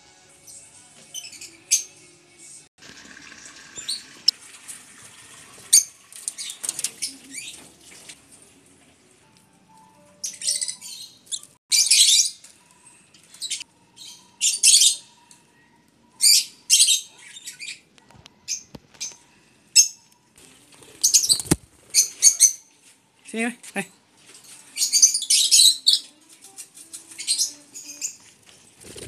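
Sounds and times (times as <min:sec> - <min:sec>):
lovebirds chirping shrilly: 0:10.2 - 0:12.4.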